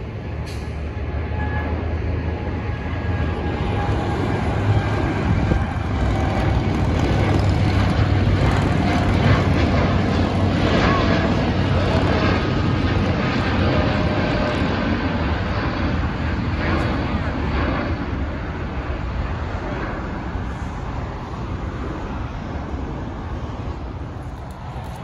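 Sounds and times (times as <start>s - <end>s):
airliner jet engines roaring: 0.0s - 25.0s.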